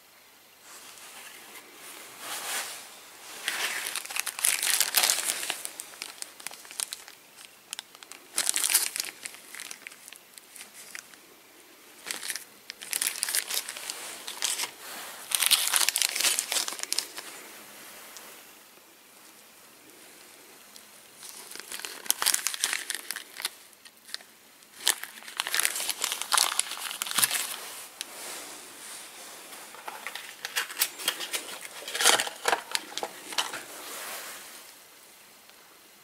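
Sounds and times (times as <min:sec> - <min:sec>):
plastic bags crinkling: 0:02.3 - 0:11.2, 0:12.0 - 0:17.4, 0:21.2 - 0:28.1, 0:29.4 - 0:33.8.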